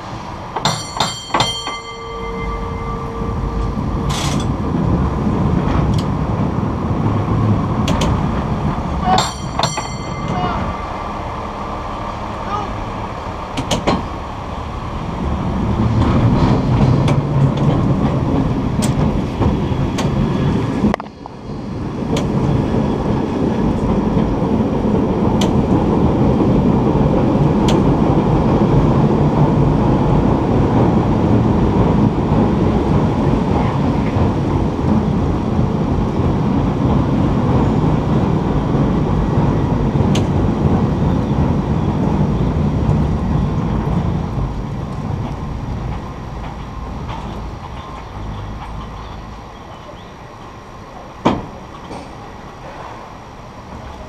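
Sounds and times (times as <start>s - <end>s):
cable car rumbling: 0.0s - 54.0s
sharp track clicks: 5.6s - 6.2s, 7.8s - 8.2s, 13.5s - 14.1s, 16.0s - 20.2s, 27.6s - 28.0s, 40.1s - 40.5s.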